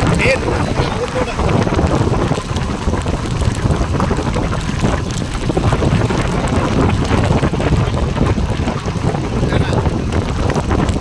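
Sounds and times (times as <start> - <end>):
car road noise: 0.0 - 11.0
wind buffeting microphone: 0.0 - 11.0.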